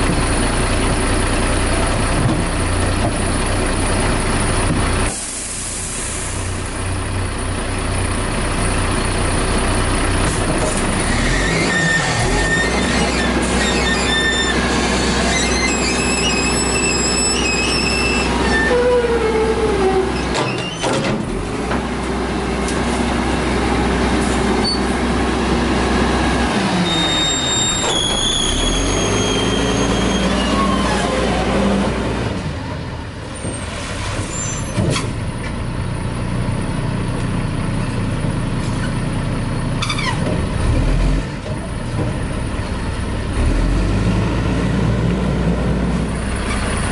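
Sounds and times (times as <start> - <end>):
diesel engine running hard: 0.0 - 46.9
air brake hiss: 5.1 - 6.6
metal squeals from lift arms: 11.1 - 20.9, 26.8 - 31.5, 33.6 - 34.8.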